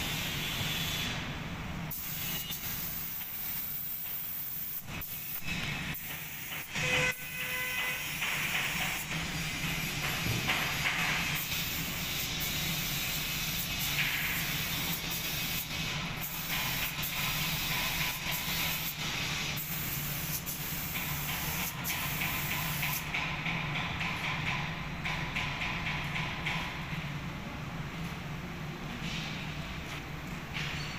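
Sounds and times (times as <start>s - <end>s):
paint spray gun hissing: 1.9s - 5.4s, 8.2s - 23.2s.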